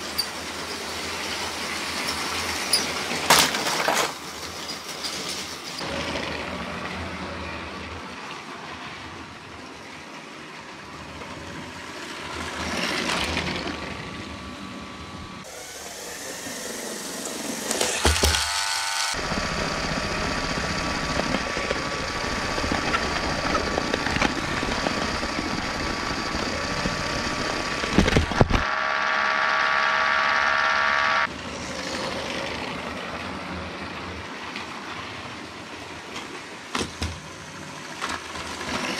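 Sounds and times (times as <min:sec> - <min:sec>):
toy train motors whirring: 0:00.0 - 0:06.0, 0:15.4 - 0:33.3, 0:37.5 - 0:38.9
wheels clattering over track: 0:00.0 - 0:07.0, 0:19.2 - 0:28.6
steady motor whine: 0:13.2 - 0:34.2.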